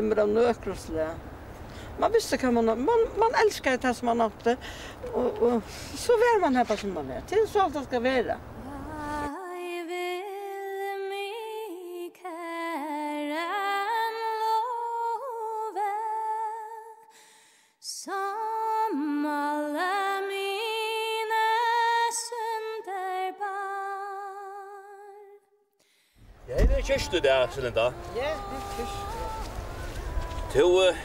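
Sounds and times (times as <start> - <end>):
person singing unaccompanied: 8.6 - 16.6, 26.5 - 31.0.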